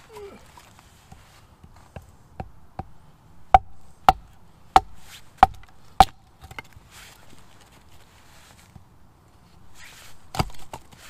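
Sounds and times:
hatchet chopping log: 1.6s - 6.7s.

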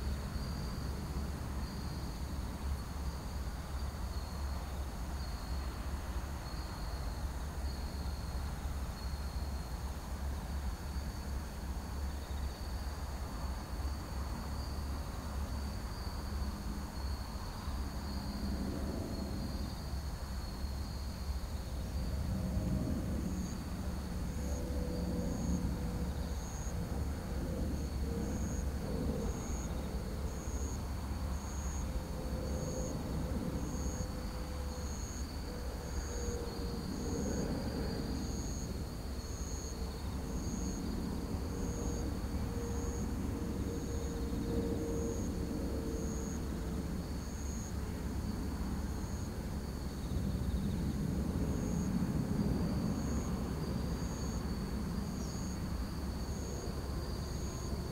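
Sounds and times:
crickets chirping: 0.0s - 57.9s
airplane rumble: 16.4s - 20.4s, 21.3s - 57.9s.

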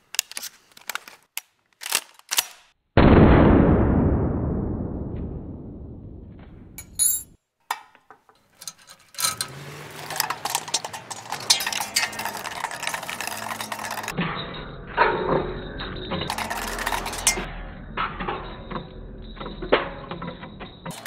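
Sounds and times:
loud booming hit: 3.0s - 6.8s
metal parts clinking and rattling: 6.8s - 14.2s, 16.1s - 17.5s, 19.7s - 21.0s.

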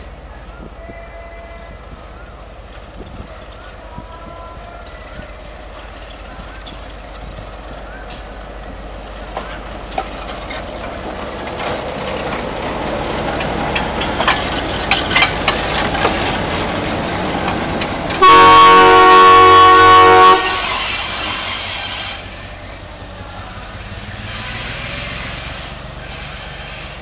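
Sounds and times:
wheels clicking over rail joints: 0.0s - 19.6s
locomotive engine rumbling: 0.0s - 27.0s
locomotive horn blast: 18.1s - 22.2s.

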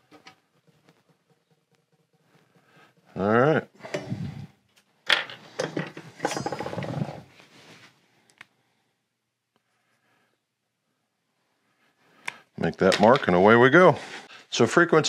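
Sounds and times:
rattling clatter: 5.6s - 7.3s.

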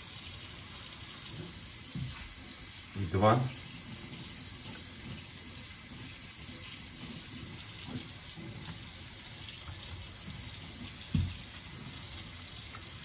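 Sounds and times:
tap running into sink: 9.6s - 11.7s
thump: 11.1s - 11.4s.

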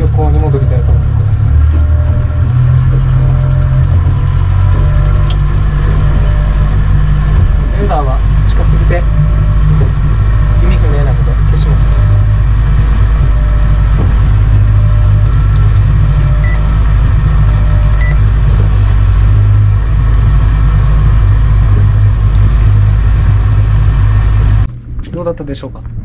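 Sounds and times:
outboard motor running: 0.0s - 26.0s
short electronic beeps: 16.3s - 16.7s, 18.0s - 18.2s.

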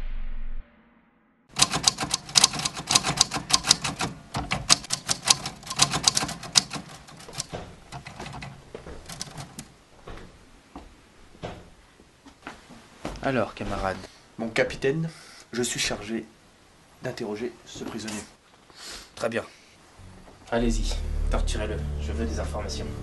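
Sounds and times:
typewriter key strikes: 1.5s - 9.7s.

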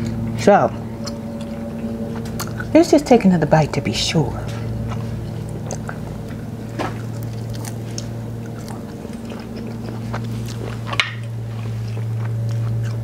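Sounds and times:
low steady hum: 0.0s - 13.0s
chewing crispy chicken: 4.4s - 13.0s.

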